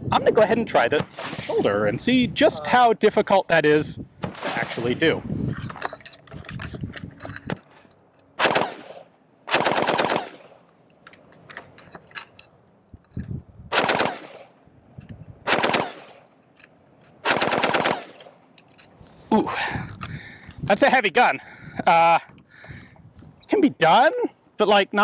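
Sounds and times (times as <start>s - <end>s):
machine gun automatic fire: 8.4s - 10.6s, 13.7s - 14.5s, 15.5s - 16.2s, 17.2s - 18.3s.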